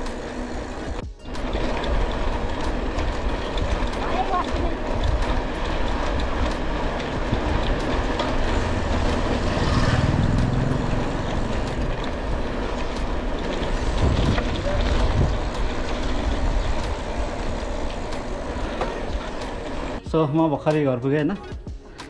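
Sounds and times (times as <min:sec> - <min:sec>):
motor vehicle passing: 0:00.0 - 0:20.0
road traffic: 0:00.0 - 0:21.1
wind on microphone: 0:13.7 - 0:18.2.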